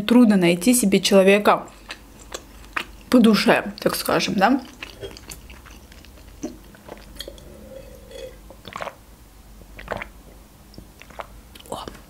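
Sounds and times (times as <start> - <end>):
wet mouth clicks: 1.7 - 3.2, 4.6 - 7.4, 8.1 - 9.0, 9.8 - 12.0
close chewing: 1.7 - 9.0, 10.8 - 12.0.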